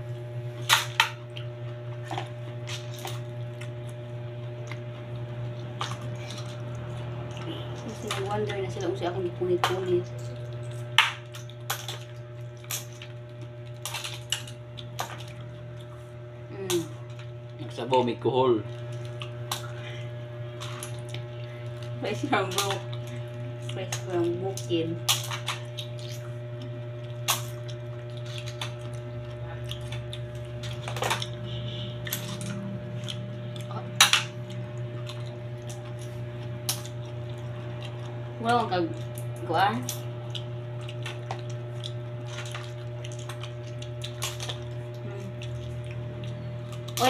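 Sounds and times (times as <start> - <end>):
steady low hum: 0.0 - 47.0
eating clicks and mouth noises: 38.9 - 47.0.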